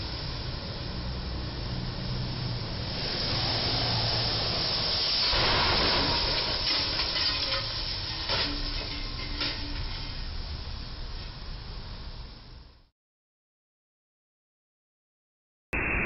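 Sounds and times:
tyres hissing on wet road: 0.0 - 12.6.

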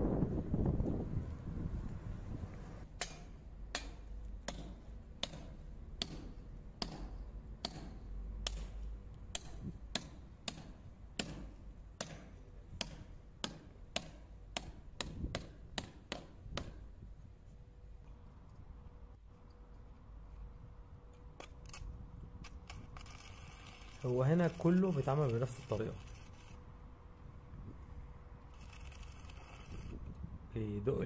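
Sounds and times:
hammer striking metal anchors: 3.0 - 16.8.

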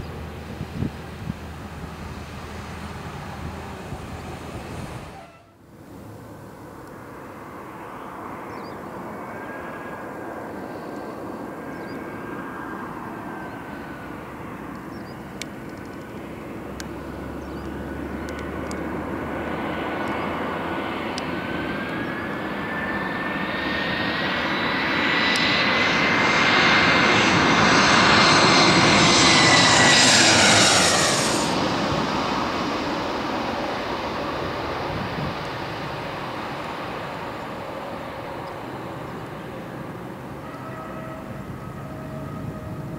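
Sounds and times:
jet engines rushing and whining: 0.0 - 42.9.

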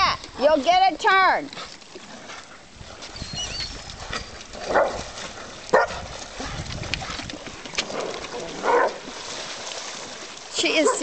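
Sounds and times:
dog barking: 4.7 - 5.0, 5.7 - 6.0, 8.6 - 9.0.

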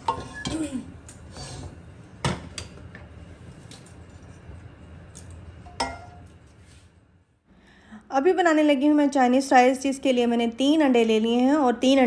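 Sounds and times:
metal spoon clinking on pots: 5.7 - 6.2.

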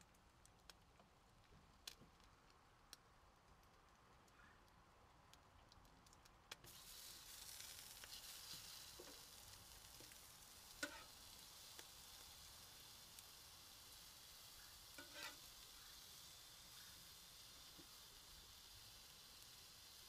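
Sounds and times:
food sizzling on a griddle: 6.6 - 20.0
spatula click on griddle: 9.9 - 11.9, 14.9 - 15.5.

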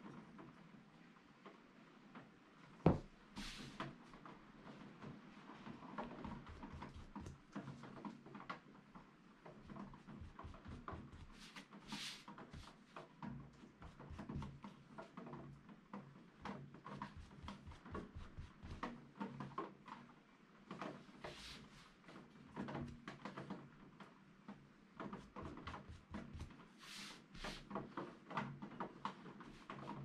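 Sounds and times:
brush tapping and scraping on canvas: 2.9 - 4.0, 6.0 - 8.1, 9.5 - 15.2, 16.4 - 19.0, 21.2 - 22.0, 25.0 - 28.1
brush swishing: 3.4 - 3.8, 10.0 - 12.8, 21.2 - 21.9, 25.4 - 27.7.

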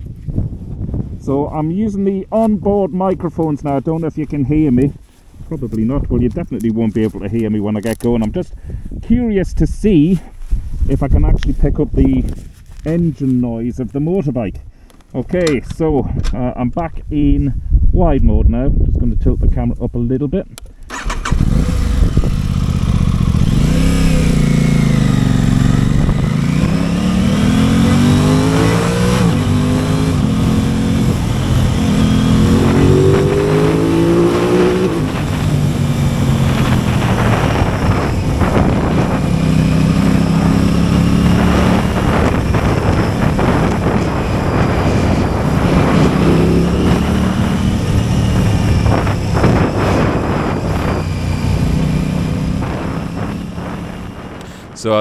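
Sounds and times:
wind buffeting microphone: 0.0 - 14.7, 15.3 - 55.0
motorcycle engine accelerating: 20.9 - 55.0.

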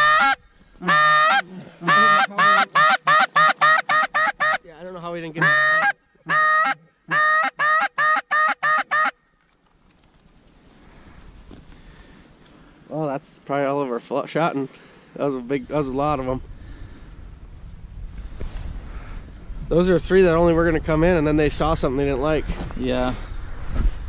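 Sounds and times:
goose call honks and clucks: 0.0 - 4.7, 5.4 - 9.2.

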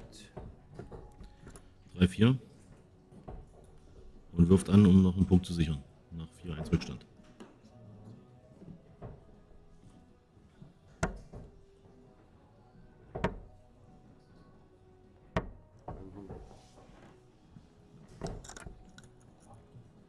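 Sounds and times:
darts thudding into dartboard: 10.9 - 11.5, 15.3 - 16.6
darts pulled out rattling: 18.2 - 19.3.

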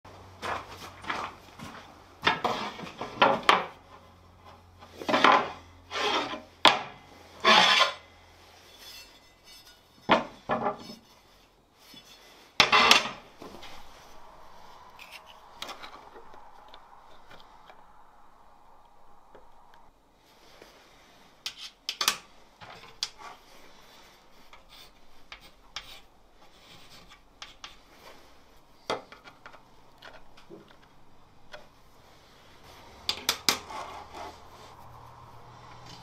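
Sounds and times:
knocks and scrapes on steel table: 11.9 - 13.9.

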